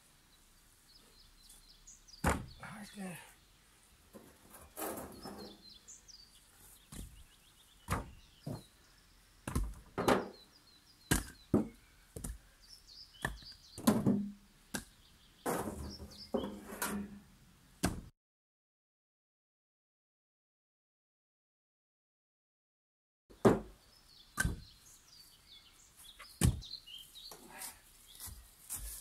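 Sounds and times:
firewood logs knocking together: 7.9 - 8.7, 9.4 - 10.4, 11.1 - 12.4, 13.2 - 17.0, 24.4 - 24.7, 26.4 - 26.7.

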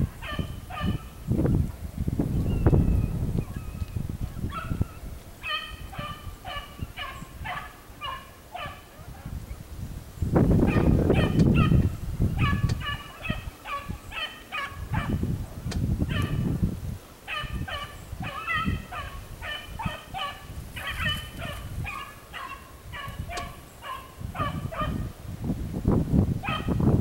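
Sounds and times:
beagle baying with high yelps: 0.0 - 1.2, 4.4 - 9.3, 10.6 - 15.3, 16.1 - 16.5, 17.3 - 25.1, 26.4 - 26.8
low rumble on microphone: 0.0 - 7.6, 8.6 - 14.1, 14.7 - 27.0.

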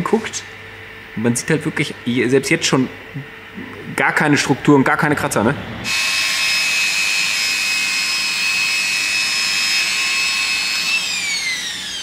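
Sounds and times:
electric polisher whining: 5.8 - 12.0.

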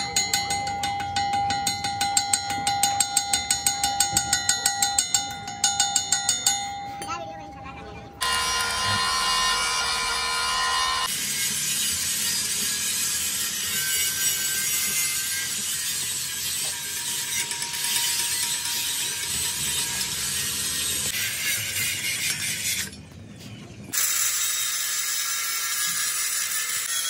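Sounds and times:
angle grinder grinding steel: 8.2 - 23.0, 23.9 - 27.0.

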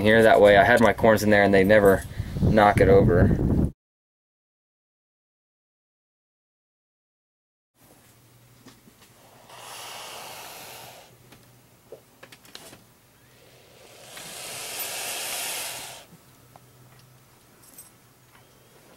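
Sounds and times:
snake hissing: 9.1 - 11.2, 13.2 - 16.1.

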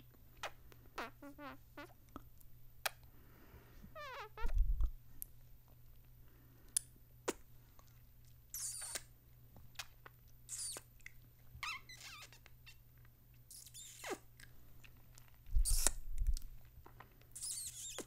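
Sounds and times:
squeaky kissing sounds: 4.0 - 4.6, 8.5 - 9.1, 9.8 - 10.9, 11.6 - 12.8, 13.5 - 14.4, 15.6 - 16.0, 17.3 - 18.0.

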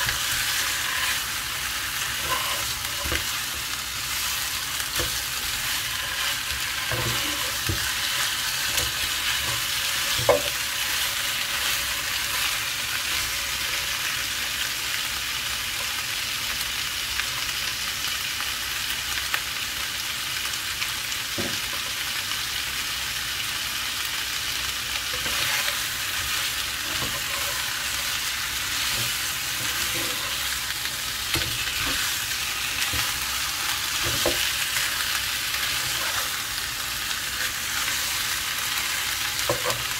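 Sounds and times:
chicken sizzling in a pan: 0.0 - 39.9.

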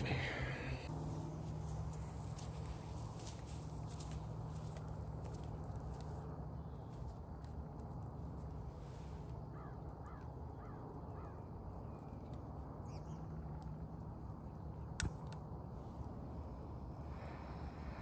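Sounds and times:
low background rumble: 0.0 - 18.0
crow cawing: 9.5 - 11.4.

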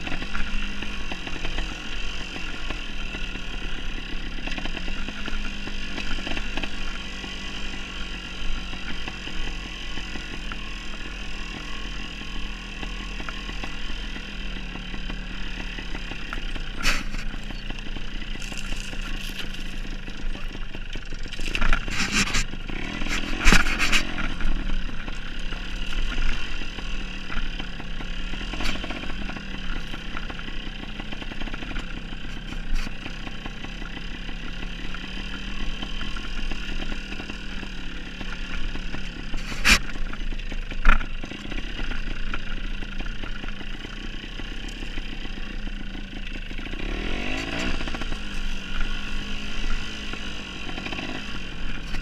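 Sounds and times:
knocks and clatter over rocks: 0.0 - 9.3, 12.8 - 44.0
dirt bike engine running: 0.0 - 52.0.

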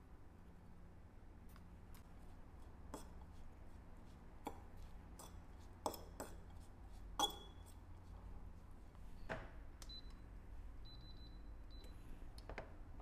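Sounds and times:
metal fork clinking on ceramic bowl: 7.2 - 7.6.

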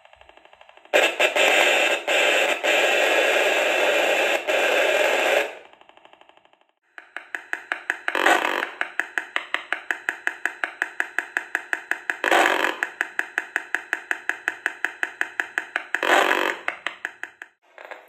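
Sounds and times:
buzzing static: 0.0 - 5.8, 7.0 - 17.5
rapid train of clicks: 7.0 - 16.0.

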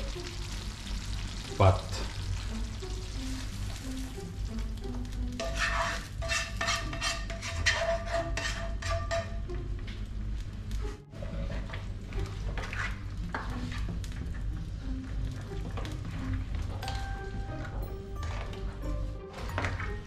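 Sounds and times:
spatula scraping frying pan: 5.3 - 9.5, 11.2 - 14.0
stirring stew in metal pot: 5.3 - 9.6, 11.1 - 14.5.

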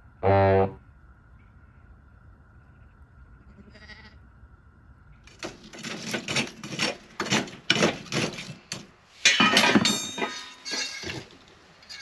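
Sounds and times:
sheep bleating: 3.5 - 4.2.

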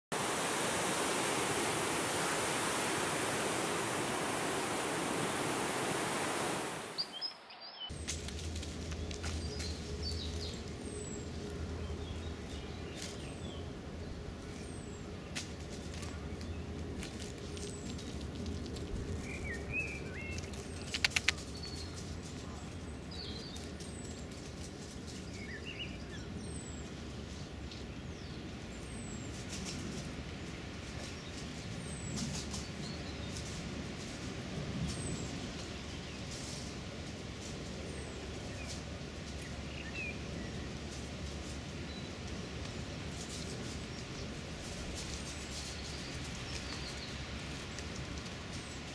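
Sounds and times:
small birds chirping: 0.8 - 8.2, 8.8 - 33.6, 37.7 - 48.9
magpie pecking clicks: 20.8 - 21.7.

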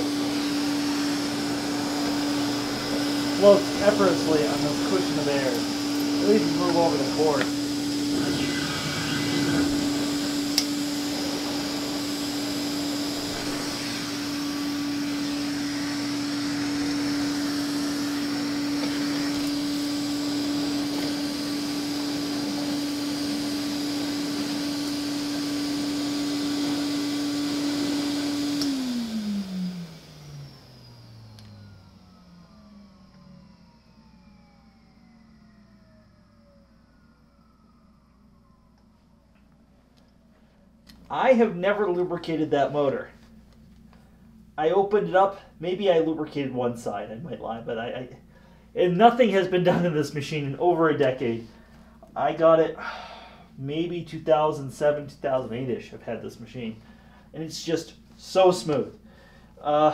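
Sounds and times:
motor winding down: 0.0 - 38.8
vacuum cleaner running: 0.0 - 59.9.

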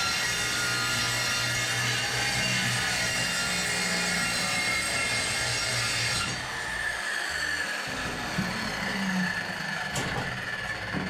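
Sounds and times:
circular saw cutting: 0.0 - 11.0
saw blade spinning down whine: 0.0 - 11.0.

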